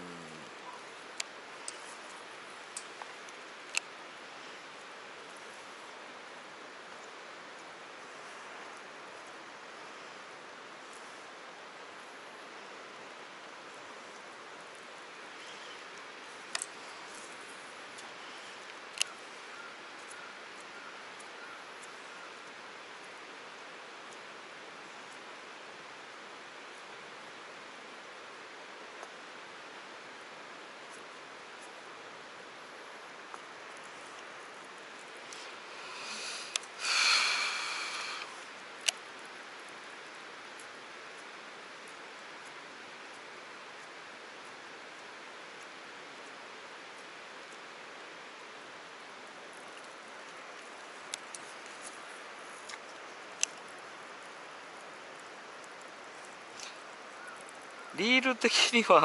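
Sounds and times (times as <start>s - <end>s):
outdoor background hiss: 0.0s - 59.0s
small waterfall rushing: 22.1s - 59.0s.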